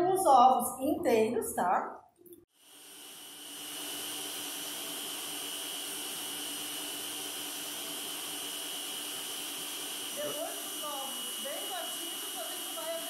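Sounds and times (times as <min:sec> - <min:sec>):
stand mixer whisking eggs: 0:02.7 - 0:13.0.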